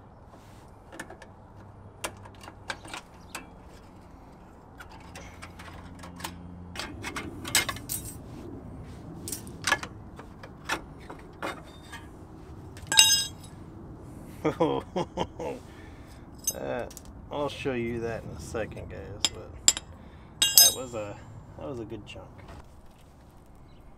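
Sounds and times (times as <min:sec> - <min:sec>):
metallic clicks of pliers on springs: 0:16.4 - 0:17.1, 0:20.4 - 0:21.0.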